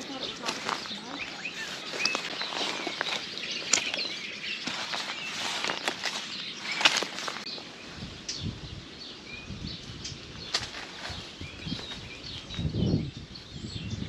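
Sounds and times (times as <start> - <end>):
dry leaves rustling and crackling: 0.0 - 8.2, 10.5 - 12.8
small birds chirping: 0.0 - 14.0.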